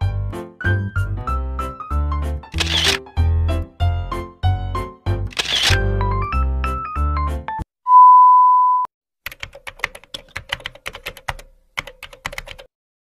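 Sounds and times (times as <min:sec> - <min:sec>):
background music: 0:00.0 - 0:07.6
loud steady beep: 0:07.9 - 0:08.9
fast keyboard typing clicks: 0:09.2 - 0:12.7.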